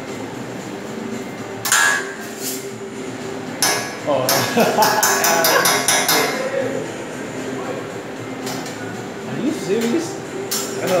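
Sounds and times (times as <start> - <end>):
metal spatula clacking on griddle: 3.6 - 6.4.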